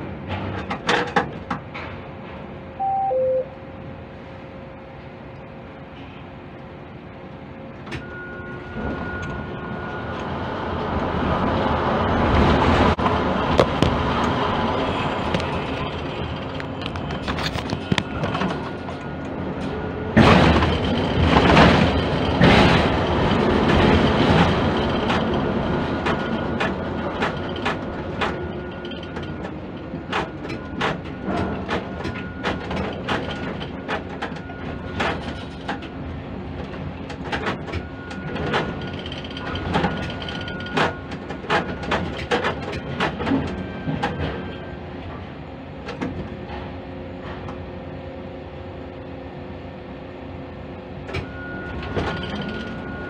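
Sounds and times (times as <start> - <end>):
crane machinery hum: 0.0 - 53.0
sharp clicks and knocks: 26.0 - 29.4, 36.6 - 44.4.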